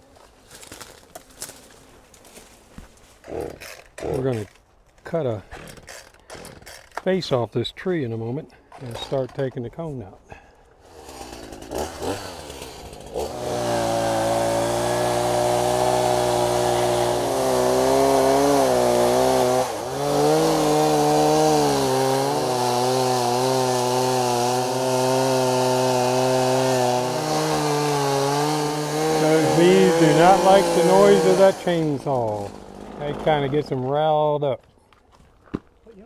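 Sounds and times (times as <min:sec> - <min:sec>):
chainsaw cutting wood: 0:03.2 - 0:04.6, 0:05.5 - 0:07.1, 0:10.8 - 0:34.0.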